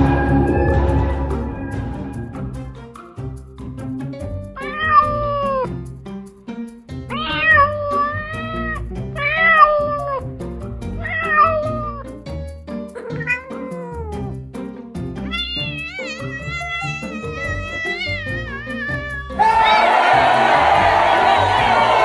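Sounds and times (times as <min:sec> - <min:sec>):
long wavering note: 0:00.0 - 0:02.7
background music: 0:00.0 - 0:22.0
cat meowing: 0:04.6 - 0:05.7, 0:07.1 - 0:10.2, 0:11.0 - 0:12.0, 0:13.0 - 0:14.3, 0:15.2 - 0:19.8.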